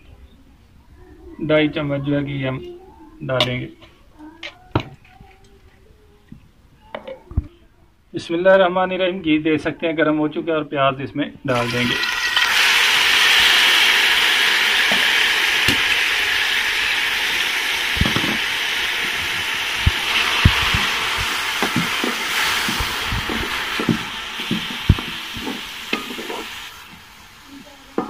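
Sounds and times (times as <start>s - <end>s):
onions sizzling in hot fat: 11.5s - 28.0s
wooden spatula knocking on pot: 19.8s - 26.5s.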